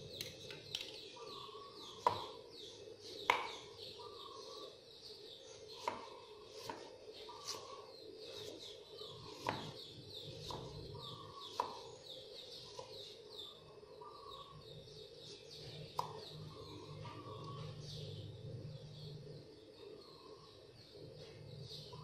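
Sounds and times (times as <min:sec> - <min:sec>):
birds chirping: 0:00.0 - 0:22.0
knife chopping on wooden board: 0:02.0 - 0:02.4, 0:03.3 - 0:03.6, 0:09.3 - 0:09.8, 0:10.4 - 0:10.8, 0:11.4 - 0:11.9.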